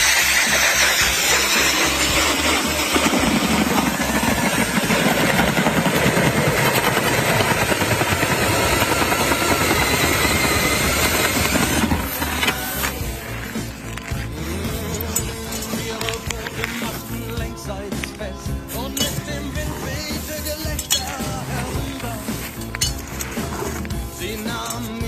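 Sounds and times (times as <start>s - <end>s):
ice auger boring through ice: 0.0s - 25.0s.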